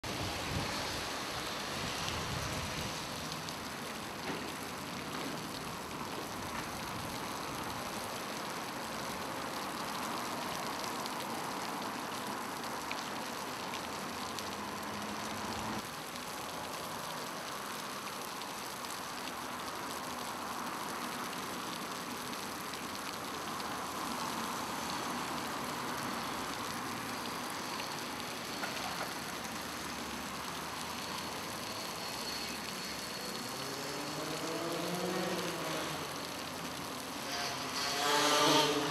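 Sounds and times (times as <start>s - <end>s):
fountain water splashing into basin: 0.0s - 38.9s
road traffic passing: 20.4s - 38.9s.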